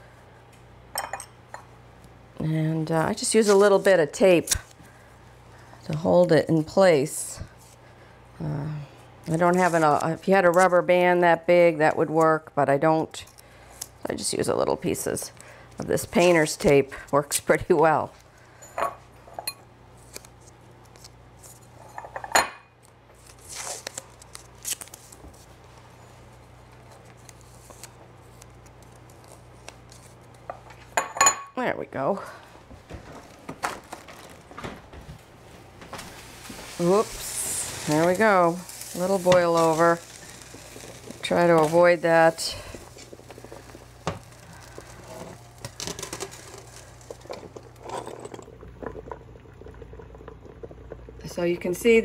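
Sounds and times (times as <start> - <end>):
steady low hum: 25.0 - 52.0.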